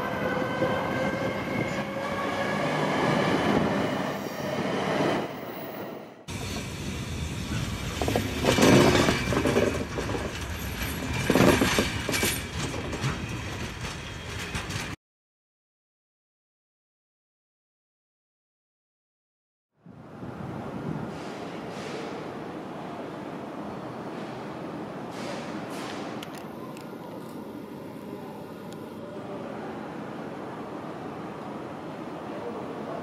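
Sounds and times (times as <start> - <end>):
train rolling rumble: 0.0 - 15.0.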